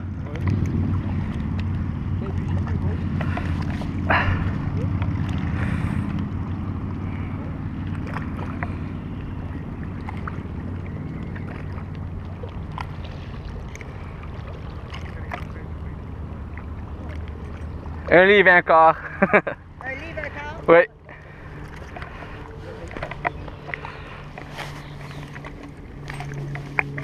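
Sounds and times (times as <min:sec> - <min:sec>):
low engine drone: 0:00.0 - 0:27.0.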